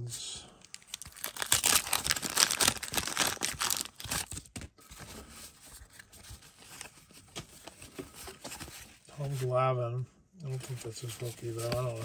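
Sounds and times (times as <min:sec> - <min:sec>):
wax paper wrapper tearing: 0:00.7 - 0:04.5
cards rustling: 0:00.7 - 0:09.5, 0:10.5 - 0:12.0.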